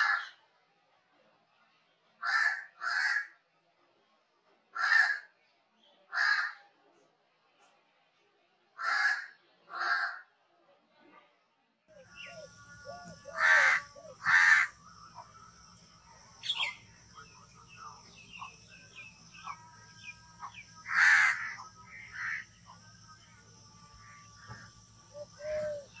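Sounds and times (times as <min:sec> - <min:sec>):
crow cawing: 0:02.2 - 0:03.3, 0:04.8 - 0:05.3, 0:06.1 - 0:06.6, 0:08.8 - 0:10.2, 0:12.0 - 0:26.0
small birds chirping: 0:11.9 - 0:26.0
steady high hiss: 0:12.0 - 0:26.0.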